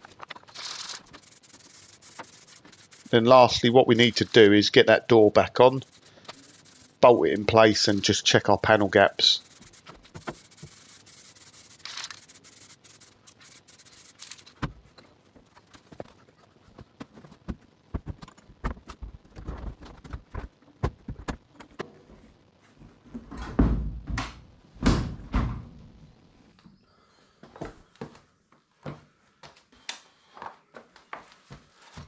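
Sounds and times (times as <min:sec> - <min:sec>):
steady hiss: 0:00.5 - 0:14.6.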